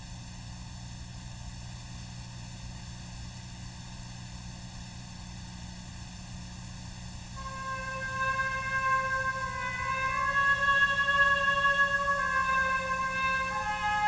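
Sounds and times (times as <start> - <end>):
tape hiss: 7.4 - 14.0.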